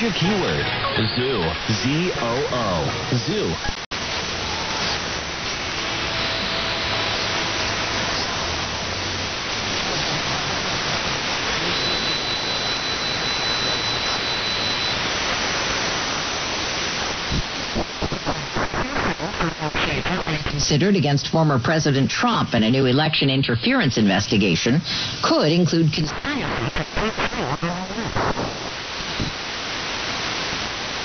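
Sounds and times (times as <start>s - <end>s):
radio station fragments: 0.0s - 29.7s
radio static hiss: 0.0s - 31.0s
faint high whistle tone: 11.6s - 15.1s.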